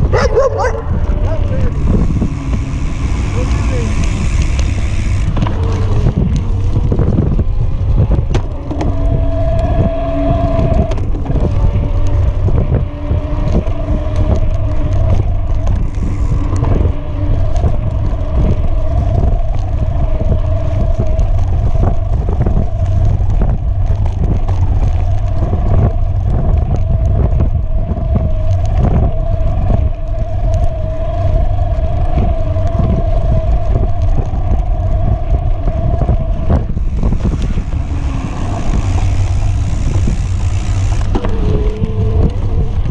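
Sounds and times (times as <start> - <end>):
electric motor whine: 0.0 - 42.9
wind and tyres rumbling on dirt: 0.0 - 42.9
bike knocks and rattles: 1.7 - 9.1, 36.7 - 42.9.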